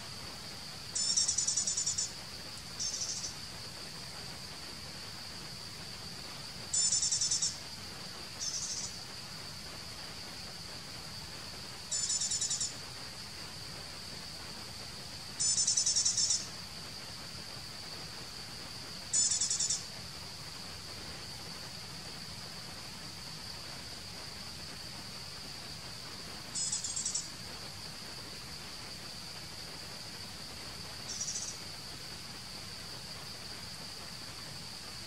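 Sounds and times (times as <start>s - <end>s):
high-pitched insect drone: 1.0s - 2.2s, 2.8s - 3.4s, 6.7s - 7.6s, 8.4s - 9.0s, 11.9s - 12.8s, 15.4s - 16.5s, 19.1s - 19.9s, 26.6s - 27.3s, 31.1s - 31.6s
rapid high trilling chirps: 2.8s - 3.3s, 6.8s - 7.6s, 8.4s - 8.9s.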